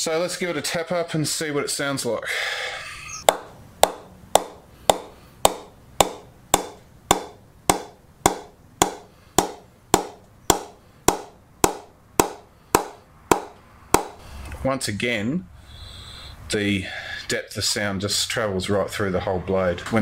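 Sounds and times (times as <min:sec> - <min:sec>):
mallet knocking cricket bat: 0:03.3 - 0:14.2.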